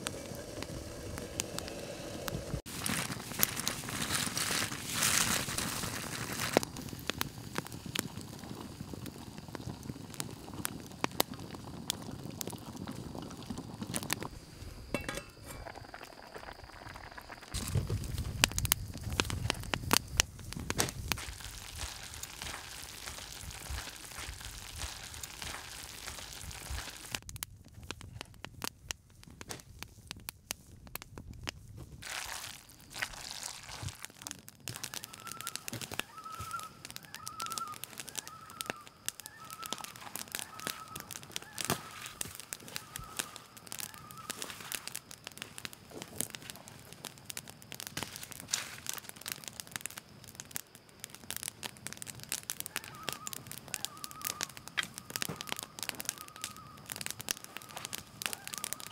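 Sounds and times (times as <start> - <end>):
crackling and snapping: 0.0 - 58.9
bird warbling: 35.0 - 42.0.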